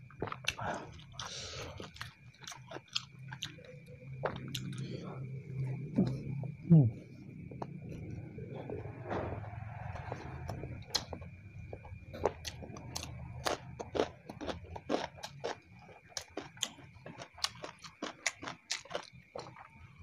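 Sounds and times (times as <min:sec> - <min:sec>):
faint background hum: 0:00.0 - 0:20.0
person chewing with lip smacks: 0:04.2 - 0:04.9.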